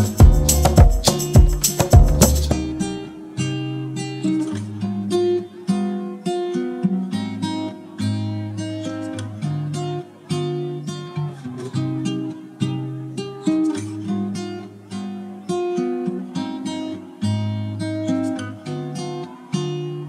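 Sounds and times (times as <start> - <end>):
bass line: 0.0 - 3.0
acoustic guitar plucked notes: 0.0 - 20.0.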